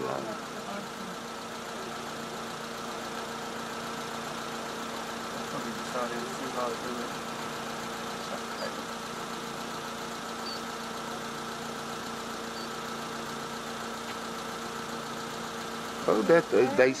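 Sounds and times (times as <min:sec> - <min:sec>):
vehicle engine idling: 0:00.0 - 0:17.0
faint high chirps: 0:10.4 - 0:10.7, 0:12.5 - 0:12.8.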